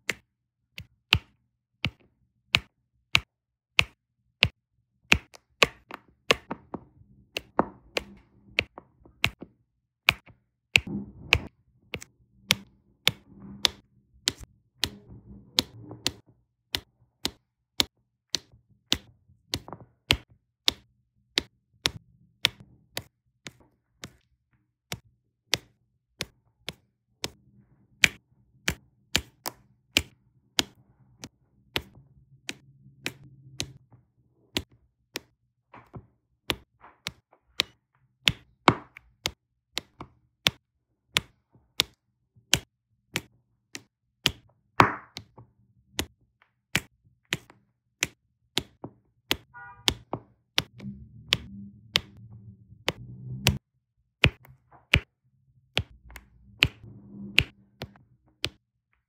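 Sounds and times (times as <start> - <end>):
pen tapping sharp clicks: 0.0 - 9.4, 15.6 - 24.3, 28.0 - 33.8, 46.7 - 52.2.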